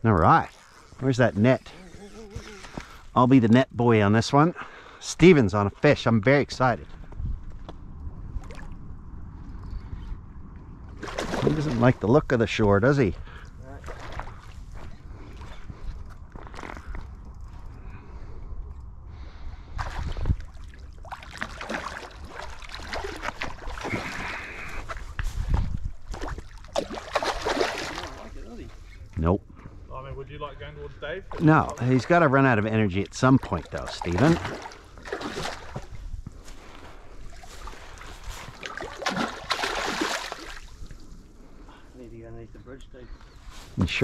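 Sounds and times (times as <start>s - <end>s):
fish thrashing and splashing: 11.0s - 11.8s, 19.8s - 25.1s, 25.9s - 28.3s, 33.4s - 36.0s, 37.2s - 41.0s.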